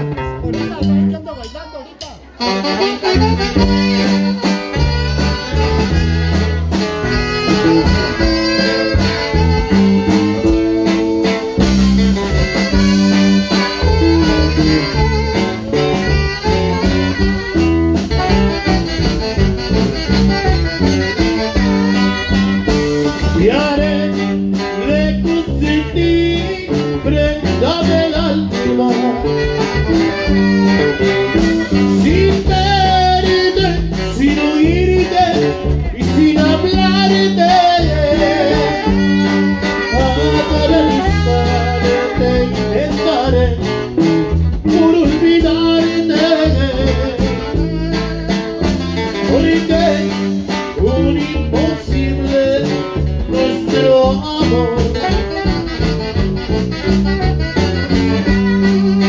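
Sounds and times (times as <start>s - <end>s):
electric bass line: 0.0s - 59.0s
keyboard: 0.0s - 59.0s
alto saxophones playing melody: 2.3s - 59.0s.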